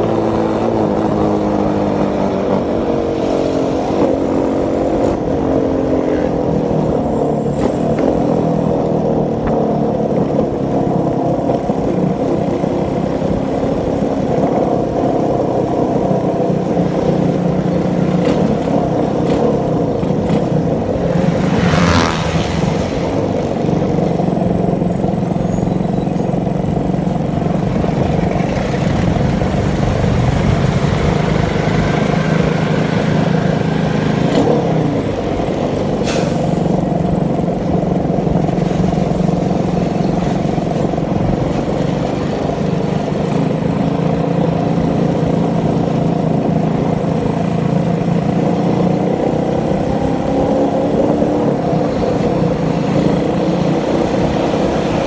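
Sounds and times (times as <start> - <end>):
motorcycle engine running: 0.0 - 35.9, 36.7 - 55.0.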